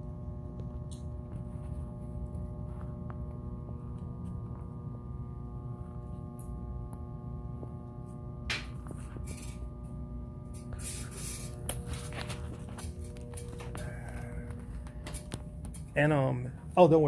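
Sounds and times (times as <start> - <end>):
steady low hum: 0.0 - 17.0
rustling noises: 10.6 - 16.0.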